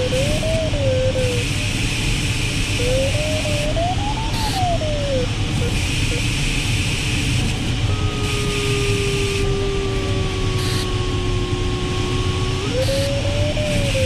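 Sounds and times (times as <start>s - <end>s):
variometer tone: 0.0s - 4.8s, 10.5s - 14.0s
cockpit airflow noise: 0.0s - 14.0s.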